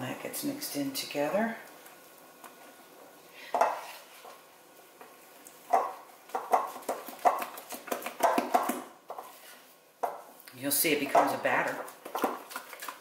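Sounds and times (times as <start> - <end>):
spatula stirring thick batter: 3.4 - 13.0.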